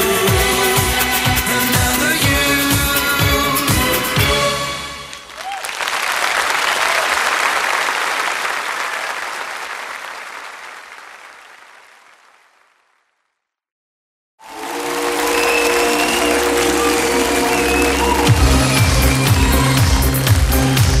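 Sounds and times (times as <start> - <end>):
music: 0.0 - 5.4, 14.4 - 21.0
crowd applause: 5.1 - 13.2, 14.4 - 21.0.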